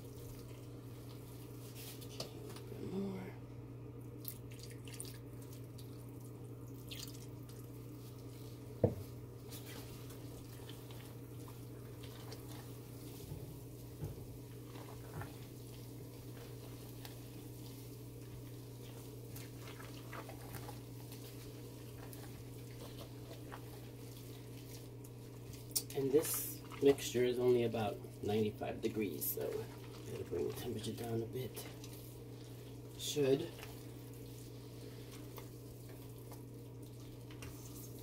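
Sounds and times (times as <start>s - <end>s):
liquid pouring: 4.1s - 8.3s
spatula squishing wet batter: 4.2s - 38.0s.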